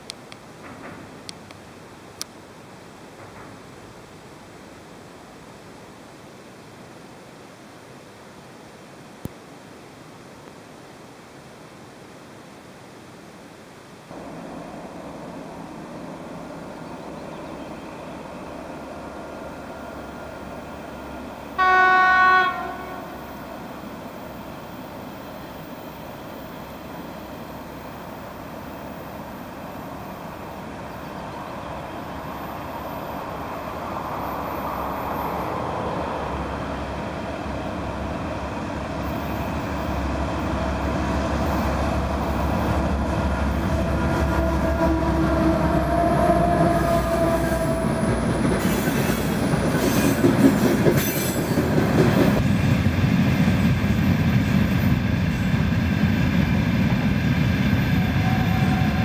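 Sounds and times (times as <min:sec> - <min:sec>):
train wheel and rail noise: 0:00.0 - 0:08.5, 0:14.1 - 0:59.0
locomotive engine drone: 0:14.1 - 0:21.6, 0:22.6 - 0:49.8.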